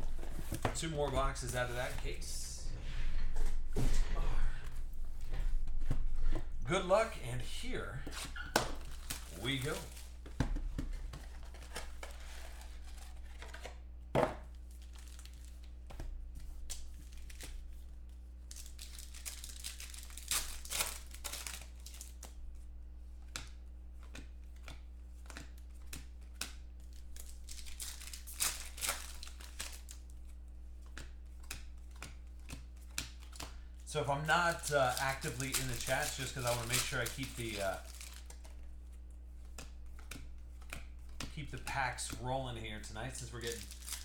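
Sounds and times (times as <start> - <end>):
foil packs tearing: 8.8 - 10.2, 18.5 - 22.3, 27.1 - 30.0, 34.0 - 38.4, 42.9 - 44.0
wrapping clicks: 26.0 - 30.1, 34.2 - 38.7, 43.2 - 44.0.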